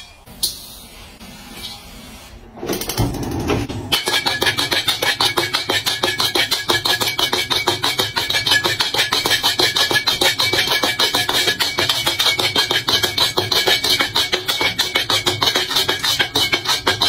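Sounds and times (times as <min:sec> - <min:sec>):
music with fast percussive beat: 0:03.9 - 0:17.0.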